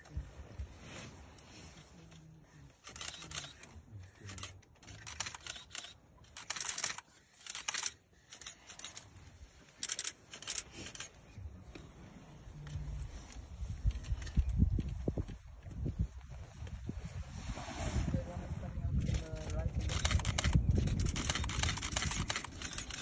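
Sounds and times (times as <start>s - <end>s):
camera shutters clicking: 4.3s - 9.0s, 19.4s - 23.0s.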